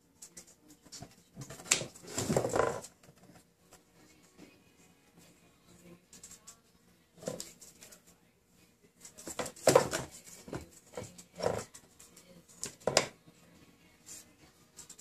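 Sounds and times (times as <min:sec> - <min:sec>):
cats scuffling in cardboard box: 0:01.0 - 0:03.5, 0:09.1 - 0:11.7.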